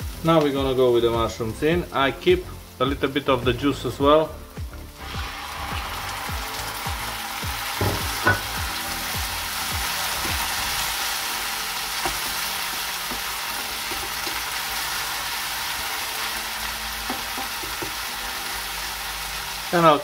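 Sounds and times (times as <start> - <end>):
mushrooms sizzling in a frying pan: 0.0 - 20.0
sharp knocks: 7.8 - 8.6.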